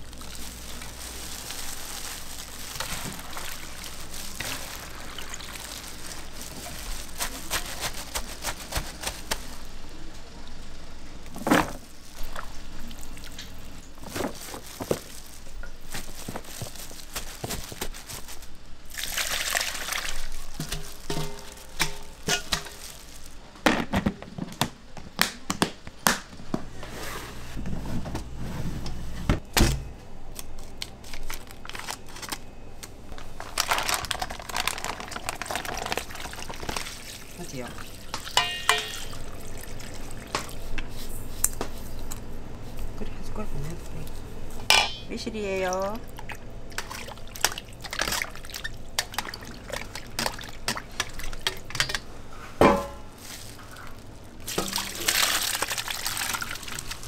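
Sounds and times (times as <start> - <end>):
wet squelching of mixed radish: 0.0 - 9.7, 12.0 - 23.4, 33.6 - 41.5, 46.0 - 51.8, 53.2 - 57.0
plastic gloves crinkling: 0.0 - 10.1, 11.4 - 23.6, 30.3 - 44.7, 46.5 - 57.0.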